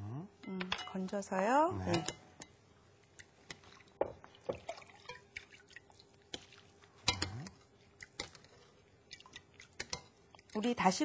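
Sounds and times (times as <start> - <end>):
water dripping through strainer: 3.2 - 8.4, 9.1 - 10.9.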